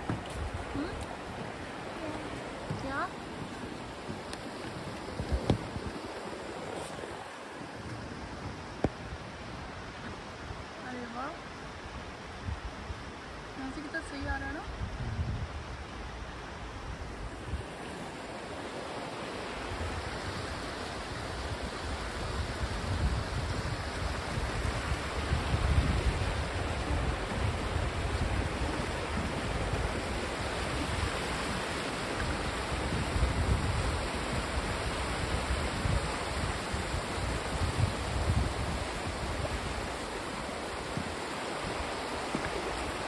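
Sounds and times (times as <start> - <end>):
wind buffeting microphone: 0.0 - 11.1, 11.7 - 43.0
creek rushing over stones: 0.0 - 43.0.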